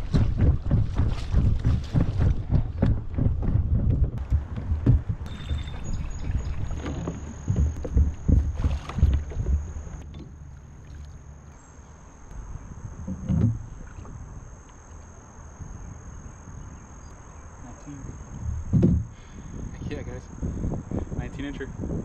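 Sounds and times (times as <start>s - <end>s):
knocks and thumps on kayak: 0.0s - 11.2s, 12.9s - 14.2s, 18.3s - 19.4s.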